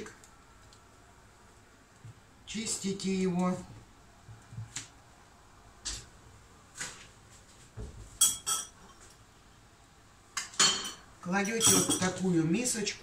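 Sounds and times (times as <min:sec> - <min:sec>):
ceramic crockery clinking: 0:08.2 - 0:09.0, 0:10.4 - 0:12.2.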